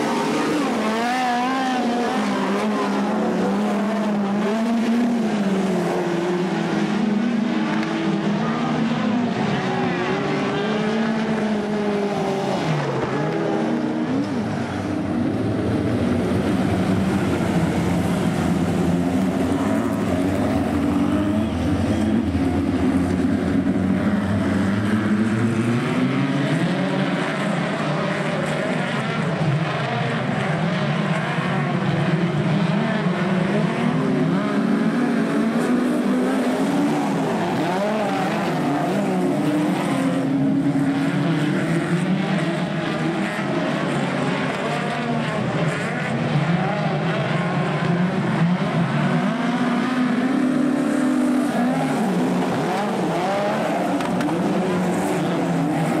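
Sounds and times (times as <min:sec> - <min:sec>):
race car engines: 0:00.0 - 0:56.0.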